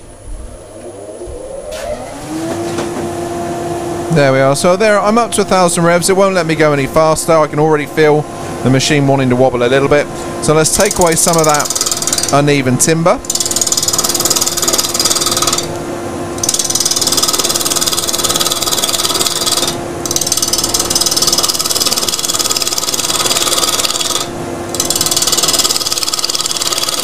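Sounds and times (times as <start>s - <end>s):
lathe and dust extractor hum: 0.0s - 27.0s
gouge shaving wood on lathe: 10.8s - 12.4s, 13.3s - 15.7s, 16.4s - 27.0s.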